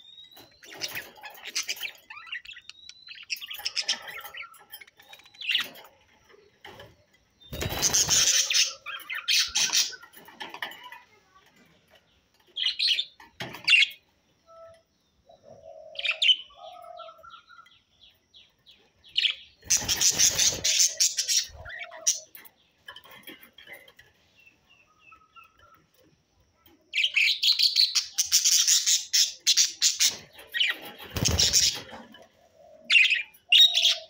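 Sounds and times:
budgerigars chirping and warbling: 0:00.0 - 0:06.8, 0:07.5 - 0:10.9, 0:18.5 - 0:26.0, 0:27.0 - 0:34.0.

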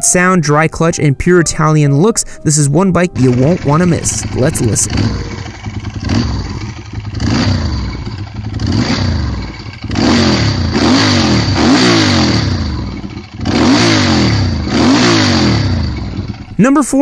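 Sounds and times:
motorcycle engine revving: 0:03.1 - 0:16.6.

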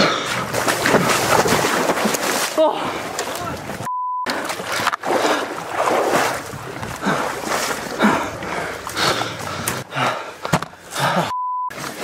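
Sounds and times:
wading through shallow stream: 0:00.0 - 0:12.0.

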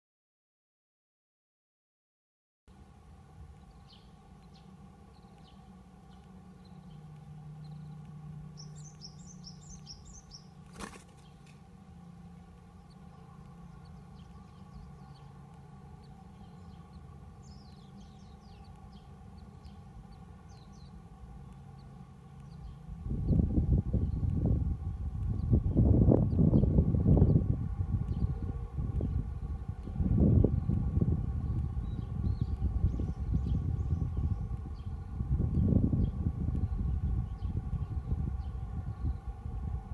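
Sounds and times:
steady low hum: 0:02.7 - 0:39.9
bird chirping high and thin: 0:07.6 - 0:10.6.

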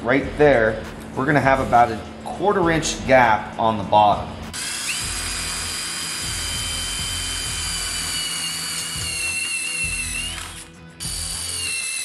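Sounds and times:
drill whining through metal: 0:04.6 - 0:12.0.

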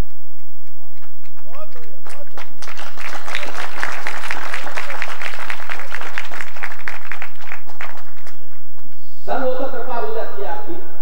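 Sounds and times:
audience applauding: 0:01.0 - 0:08.9.

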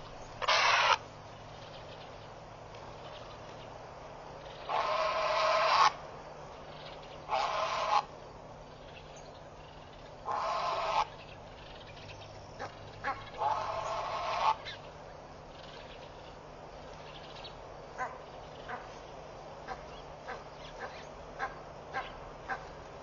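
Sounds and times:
goose honking: 0:00.4 - 0:01.0, 0:12.6 - 0:14.8.

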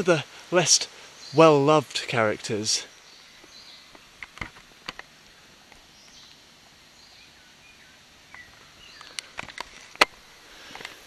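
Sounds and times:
insect hiss: 0:00.0 - 0:11.0
sharp clicks and knocks: 0:03.9 - 0:05.1
faint bird chirps: 0:05.1 - 0:09.4.

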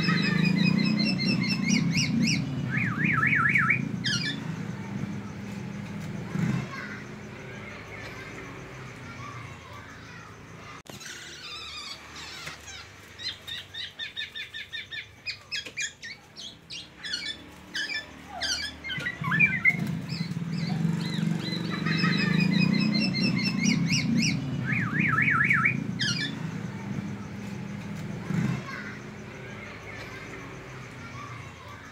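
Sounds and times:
bird singing whistled trills: 0:00.0 - 0:04.5, 0:13.2 - 0:26.6.

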